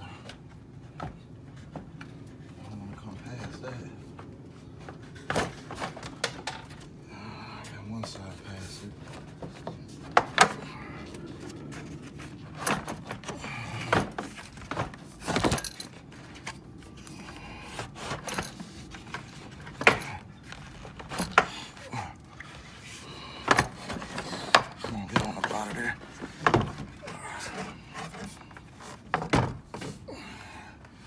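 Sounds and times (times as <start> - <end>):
plastic knocks clicks and scraping: 23.4 - 30.0.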